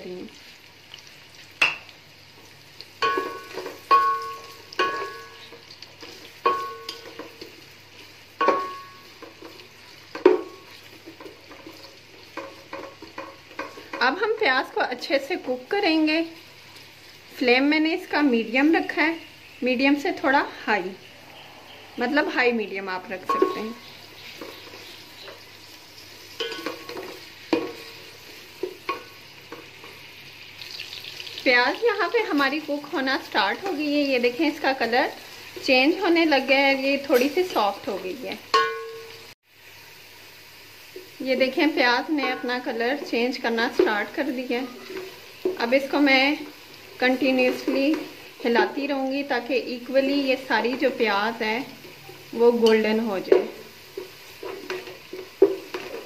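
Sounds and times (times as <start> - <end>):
onions sizzling in oil: 0.0 - 56.0
spatula stirring onions: 0.1 - 20.7, 21.7 - 56.0
spatula knocking metal pot: 3.0 - 5.6, 6.4 - 7.5, 8.4 - 11.6, 23.2 - 25.4, 26.4 - 27.9, 38.5 - 39.1
spatula knocking and scraping pot: 3.0 - 7.6, 8.4 - 14.5, 23.1 - 25.5, 26.3 - 30.0, 42.2 - 46.6, 52.6 - 56.0.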